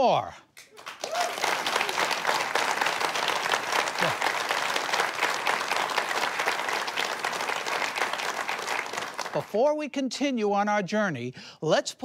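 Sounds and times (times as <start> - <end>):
audience applauding: 0.6 - 9.6.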